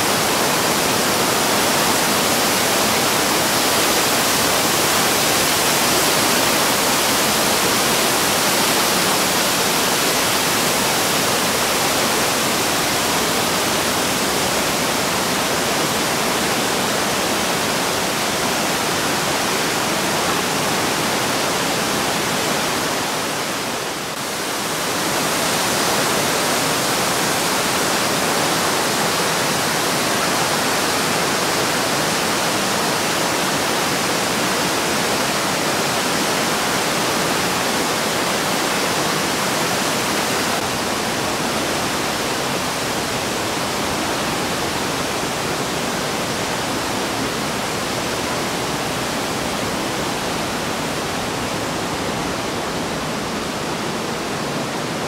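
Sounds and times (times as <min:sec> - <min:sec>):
water rushing in gorge: 0:00.0 - 0:55.0.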